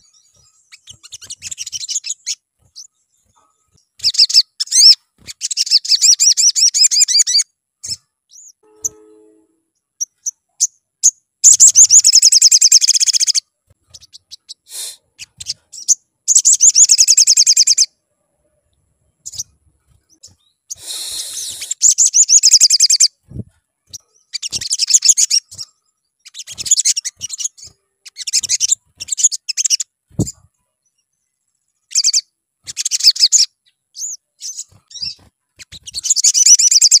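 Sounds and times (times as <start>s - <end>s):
bird singing high chattering trills: 0.0s - 17.9s, 19.1s - 37.0s.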